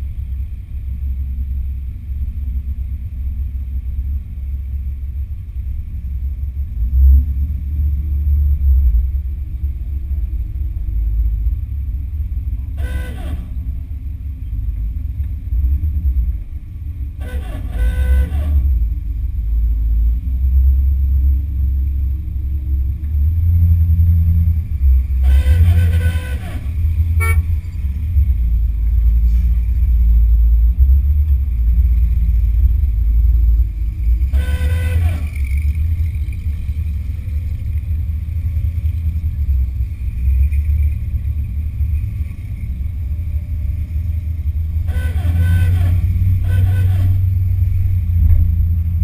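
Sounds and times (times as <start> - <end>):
car engine rumble: 0.0 - 49.0
car horn honking: 12.7 - 13.6, 17.2 - 18.6, 25.2 - 27.8, 34.3 - 35.5, 44.8 - 47.4.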